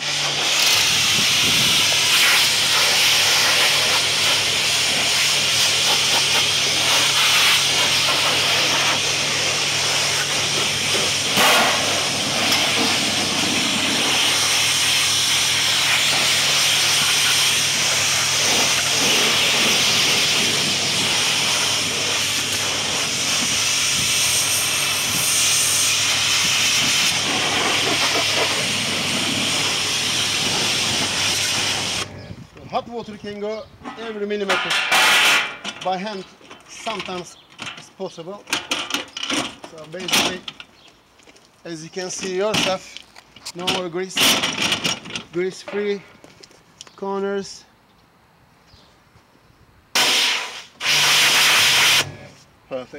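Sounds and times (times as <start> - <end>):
pressure washer jet hiss: 0.0 - 32.1, 34.7 - 35.6, 50.0 - 52.3.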